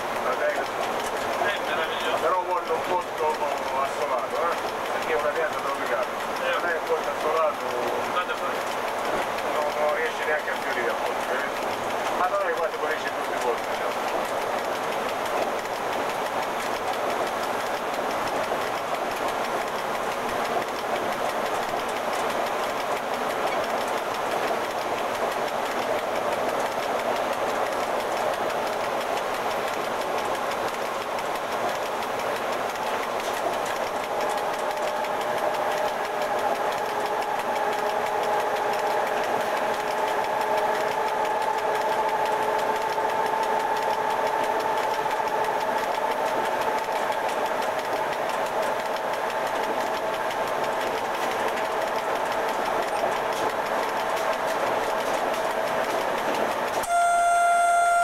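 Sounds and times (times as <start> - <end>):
locomotive cab rumble and rattle: 0.0 - 58.0
multi-tone whine: 56.7 - 58.0.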